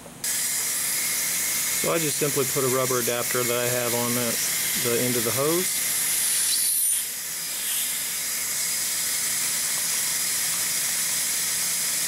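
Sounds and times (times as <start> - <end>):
compressed air hissing: 3.9 - 12.0.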